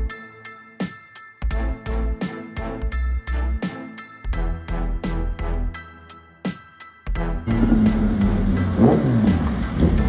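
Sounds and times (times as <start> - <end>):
background music with steady beat: 0.0 - 10.0
low steady drone: 7.5 - 10.0.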